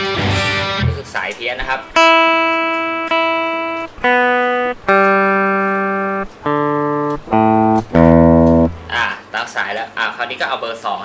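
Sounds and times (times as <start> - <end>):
electric guitar strings plucked: 1.9 - 9.1.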